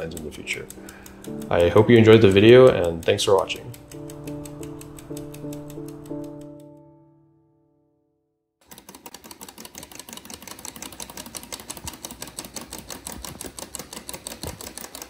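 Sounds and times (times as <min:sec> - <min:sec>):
rapid even ticking: 0:00.0 - 0:06.8, 0:08.6 - 0:15.0
background music: 0:00.0 - 0:08.1.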